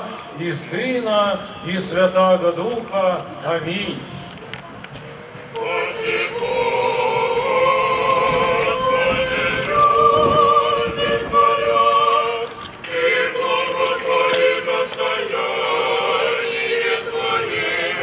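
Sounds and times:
women's choir chanting: 5.4s - 18.0s.

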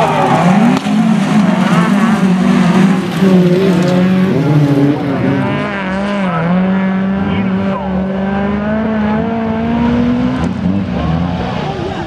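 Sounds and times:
race car engines revving: 0.0s - 12.0s.

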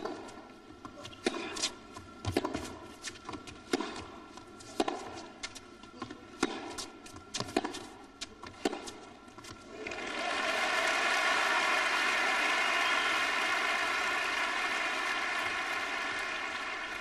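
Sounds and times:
racquets striking tennis ball: 2.2s - 2.8s, 4.7s - 5.2s, 6.0s - 9.6s
crowd applauding: 9.7s - 17.0s.

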